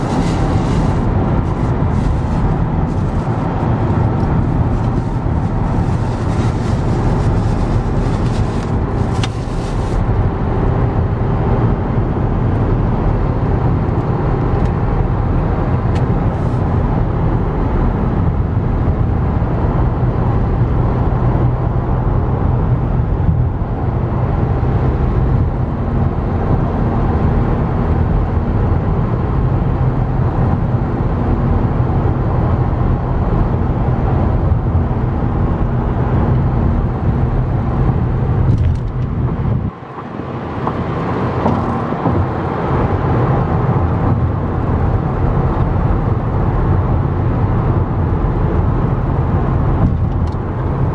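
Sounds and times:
tyre and wind hiss: 0.0s - 10.2s
deep road rumble in car: 0.0s - 50.9s.

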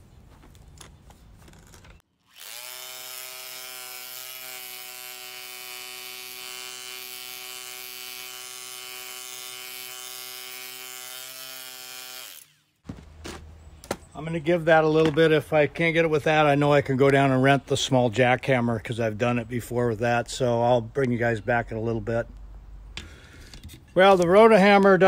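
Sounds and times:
rotary hammer drilling into concrete: 2.2s - 12.8s.

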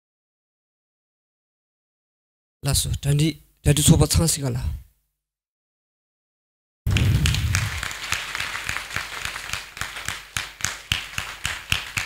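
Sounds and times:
people applauding: 6.9s - 12.0s.

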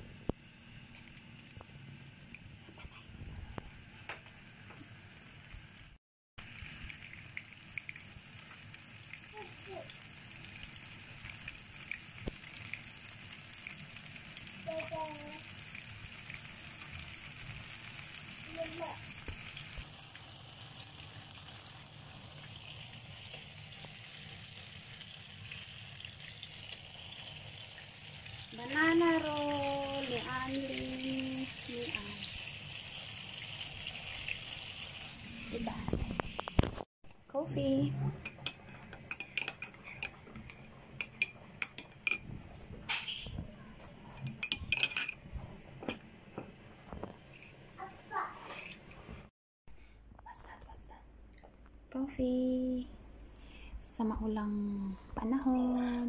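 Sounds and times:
hot oil sizzling and crackling: 0.2s - 36.9s
metal spoon clinking in ceramic mug: 44.3s - 45.2s.

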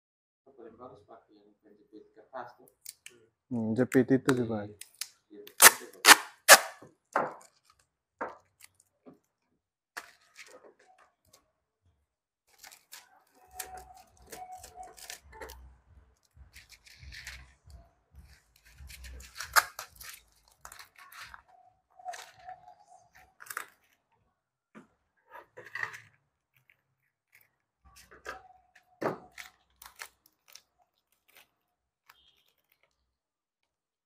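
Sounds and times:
plastic packaging crackling: 12.5s - 15.6s, 18.3s - 24.1s, 25.5s - 33.3s
packets rustling: 16.2s - 24.1s.

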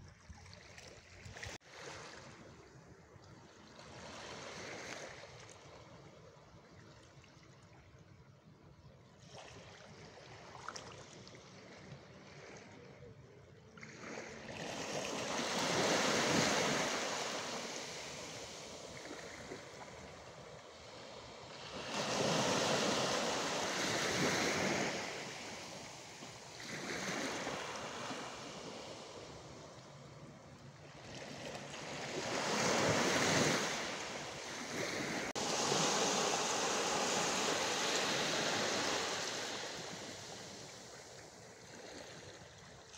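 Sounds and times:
sea waves breaking on shore: 13.7s - 42.9s.

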